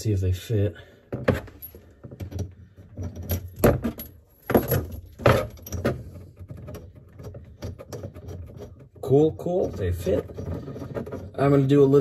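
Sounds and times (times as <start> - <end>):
metal fittings clinking and rattling: 1.2 - 12.0.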